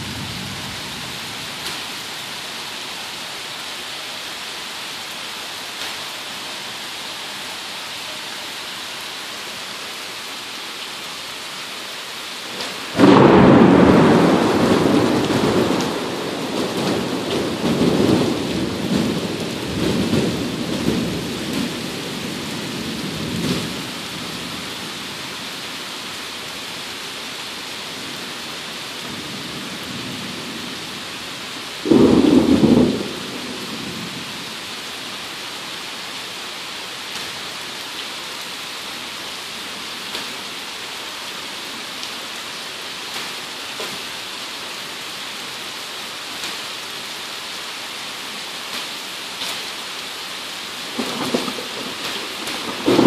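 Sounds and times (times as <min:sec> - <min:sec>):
thunder rumbling: 0:00.0 - 0:01.8, 0:12.5 - 0:25.1, 0:31.8 - 0:34.6, 0:50.9 - 0:53.0
steady rain: 0:00.0 - 0:53.0
thunder crack: 0:12.6 - 0:21.8, 0:31.8 - 0:34.3, 0:51.0 - 0:53.0.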